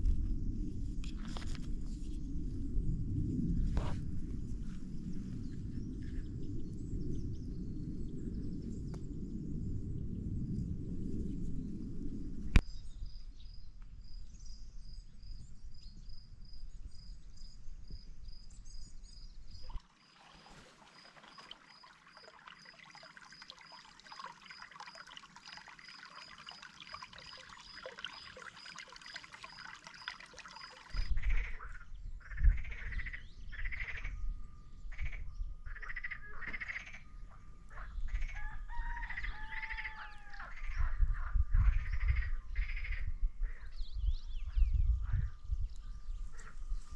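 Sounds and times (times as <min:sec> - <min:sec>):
low gusty rumble: 0:00.0 - 0:13.2.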